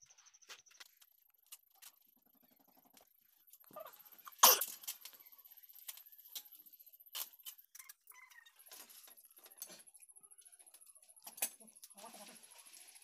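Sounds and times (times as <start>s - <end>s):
paper and tape crackling: 11.2s - 13.0s.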